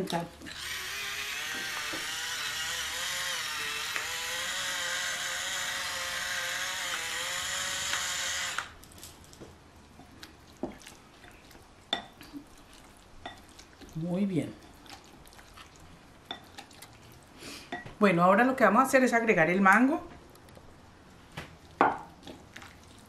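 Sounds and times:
electric pepper grinder grinding: 0.5s - 8.8s.

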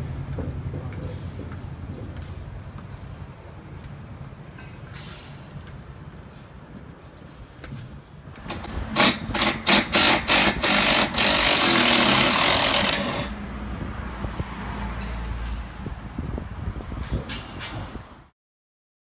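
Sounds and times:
cordless impact tool bursts: 8.4s - 13.4s.

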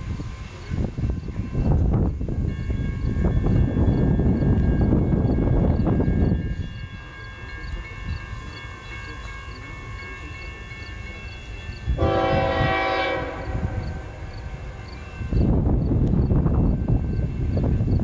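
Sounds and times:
locomotive air horn: 12.0s - 14.3s.

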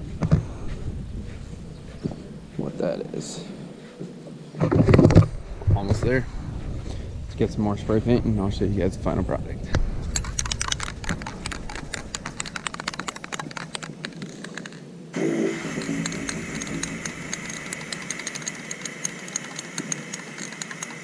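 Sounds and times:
even ticking: 10.2s - 21.0s
spray can hissing and clicking: 15.2s - 21.0s.

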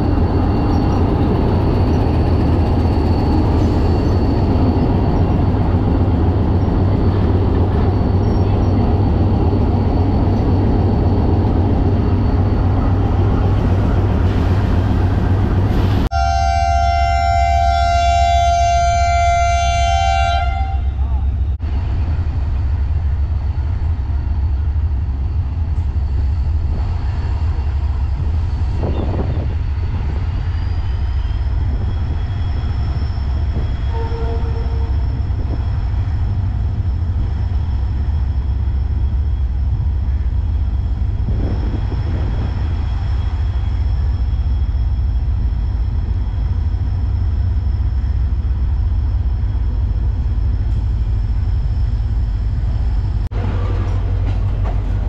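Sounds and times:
diesel locomotive engine rumbling: 0.0s - 55.0s.

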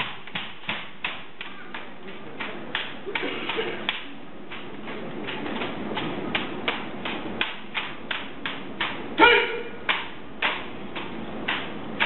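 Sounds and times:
murmur of onlookers: 1.3s - 7.0s.

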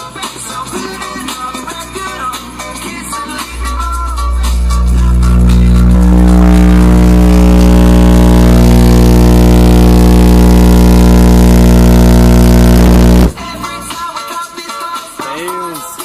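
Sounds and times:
loud bass test tone: 3.4s - 13.7s.

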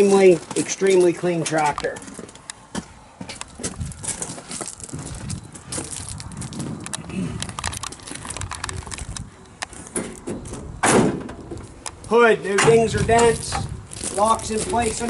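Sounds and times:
footsteps on gravel: 0.0s - 10.6s, 11.5s - 15.0s
handling clicks and scuffs: 0.0s - 15.0s
tractor hood clunking shut: 9.9s - 11.6s.

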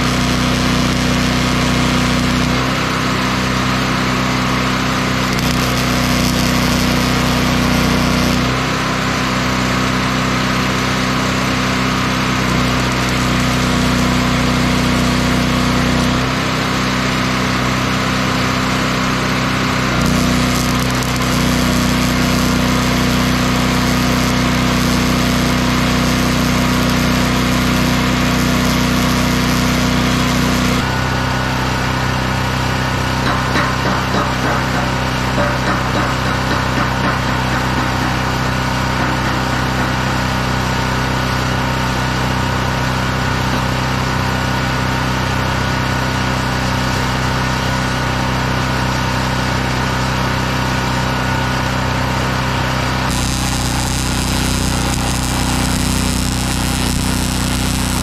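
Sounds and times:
small engine running: 0.0s - 58.0s
crackling: 5.3s - 8.5s, 20.0s - 30.8s, 53.1s - 58.0s.

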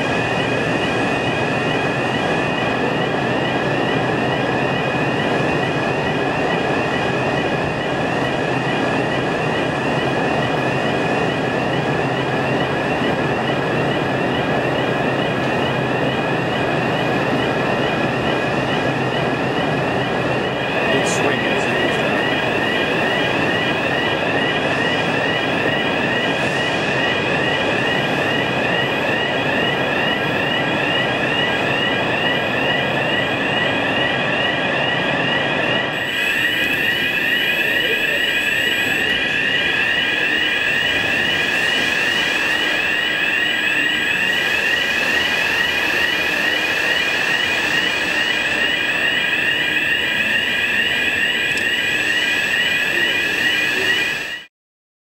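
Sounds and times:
pulsing electronic warning tone: 0.0s - 54.5s
machinery rumble: 14.8s - 30.0s.

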